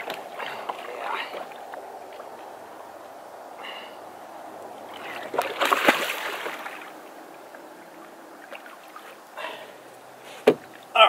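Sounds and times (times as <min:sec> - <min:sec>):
water lapping: 0:00.0 - 0:11.0
fish splashing in landing net: 0:05.0 - 0:06.9.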